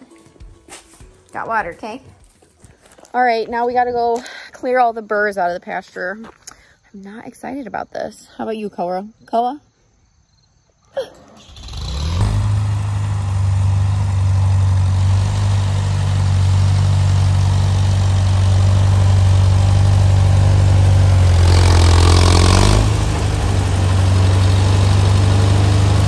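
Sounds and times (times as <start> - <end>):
tractor engine running: 11.3 - 26.0.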